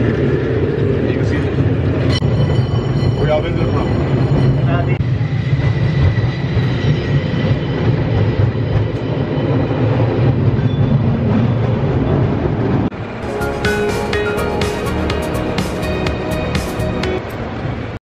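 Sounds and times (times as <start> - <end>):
cable car rumbling on rails: 0.0 - 18.0
music: 13.2 - 17.4.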